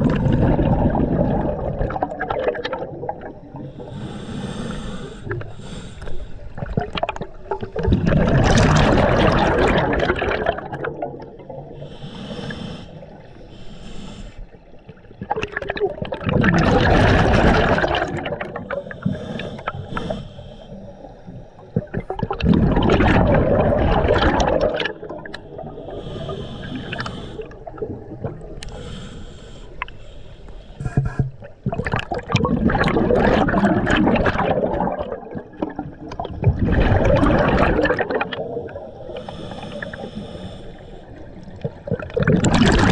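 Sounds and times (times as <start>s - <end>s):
exhaled bubbles underwater: 0.0s - 4.2s, 6.4s - 13.4s, 14.5s - 29.0s, 30.8s - 42.9s
diver inhaling through regulator: 3.6s - 6.6s, 11.8s - 14.6s, 18.6s - 21.3s, 25.4s - 27.7s, 28.6s - 31.2s, 38.8s - 41.3s.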